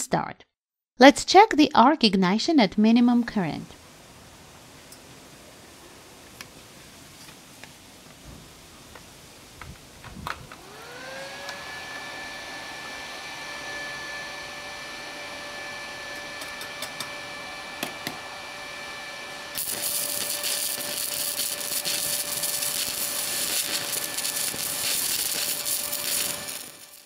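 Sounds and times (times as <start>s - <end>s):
cooling fan whine: 3.8s - 27.0s
welding arc crackling and hissing: 19.6s - 27.0s.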